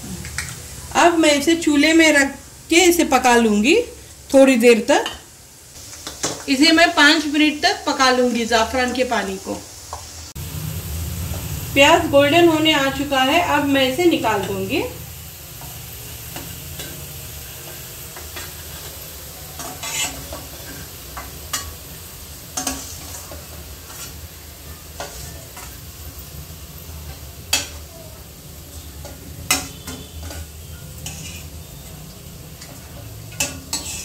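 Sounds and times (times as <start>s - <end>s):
onions sizzling in hot oil: 0.0s - 34.0s.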